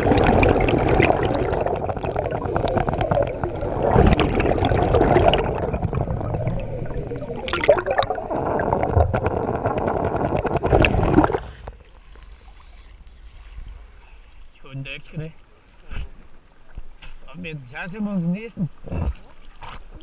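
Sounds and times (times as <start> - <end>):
underwater bubbling exhaled air: 0.0 - 12.2
faint water sounds: 0.0 - 20.0.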